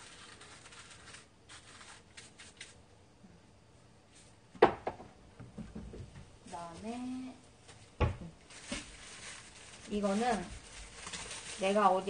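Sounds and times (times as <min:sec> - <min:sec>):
shaker hissing and rattling: 0:00.0 - 0:02.8.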